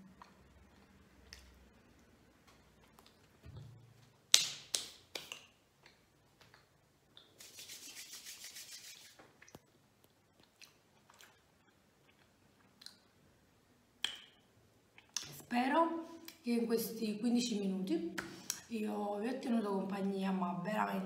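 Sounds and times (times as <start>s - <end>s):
sharp clicks and smacks: 2.4s - 7.5s, 14.0s - 14.4s
hands rubbing together: 7.3s - 9.2s.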